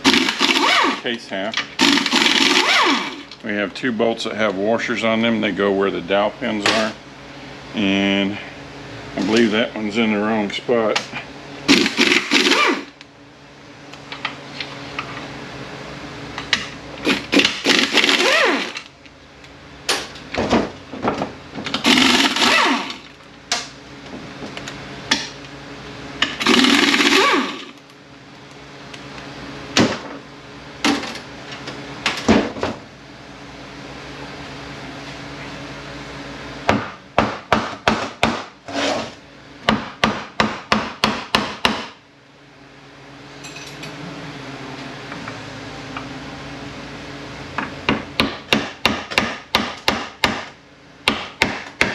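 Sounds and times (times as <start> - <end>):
power tool spinning bolts: 0.0 - 1.1, 1.8 - 3.3, 11.7 - 13.0, 17.0 - 18.9, 21.8 - 23.2, 26.3 - 27.8.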